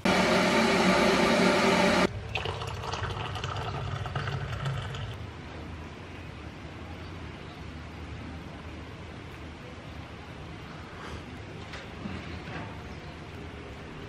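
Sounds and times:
electric kettle heating: 0.0s - 5.2s
water pouring into mug: 2.1s - 5.2s.

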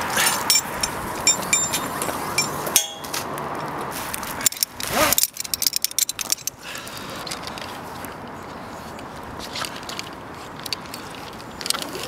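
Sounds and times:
metal hardware clinking: 0.4s - 3.2s, 4.4s - 6.6s.

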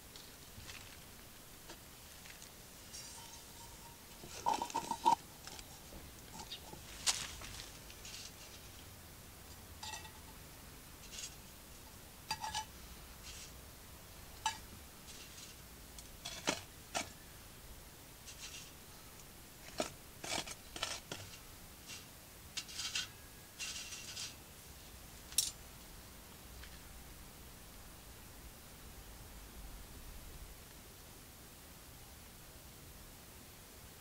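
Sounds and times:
metal tongs clinking and scraping: 2.9s - 6.8s, 9.8s - 10.4s, 11.0s - 11.4s, 12.3s - 13.5s, 16.2s - 17.1s, 18.3s - 18.8s, 19.6s - 24.4s.

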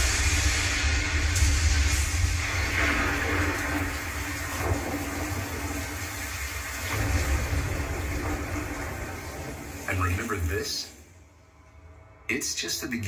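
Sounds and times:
deep heavy rumble: 0.0s - 6.2s
steady hiss of rain: 0.0s - 11.7s.

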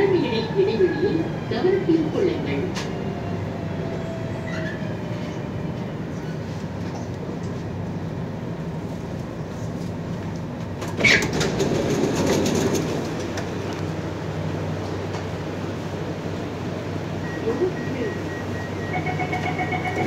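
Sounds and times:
metro train humming: 0.0s - 20.0s
train doors opening: 4.3s - 7.7s, 10.3s - 14.0s
passengers moving: 4.4s - 20.0s.

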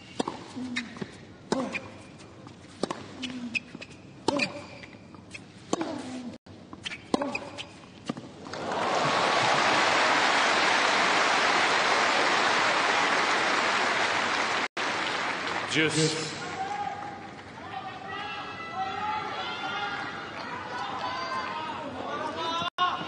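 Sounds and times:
racket striking tennis ball: 0.2s - 0.5s, 2.7s - 3.4s, 4.2s - 6.3s, 6.9s - 8.3s
crowd applauding: 8.5s - 16.7s.

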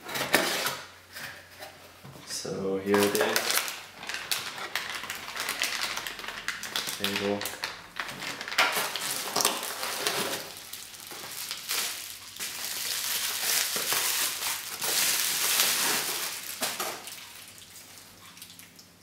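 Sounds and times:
bubble wrap and plastic crinkling: 2.4s - 18.5s.

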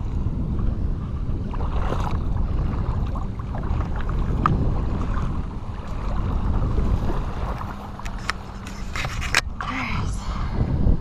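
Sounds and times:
wind rumble on microphone: 0.0s - 11.0s
water sloshing around wading legs: 1.5s - 9.4s.

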